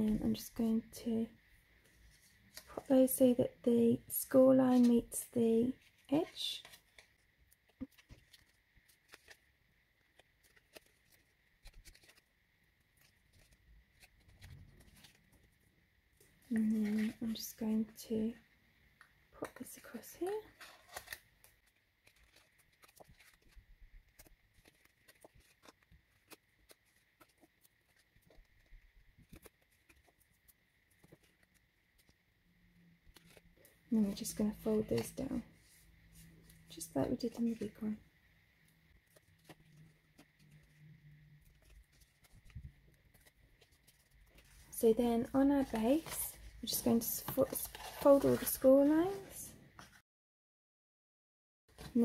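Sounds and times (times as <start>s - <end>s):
paper rustling and tapping: 6.3s - 12.3s, 20.6s - 32.2s.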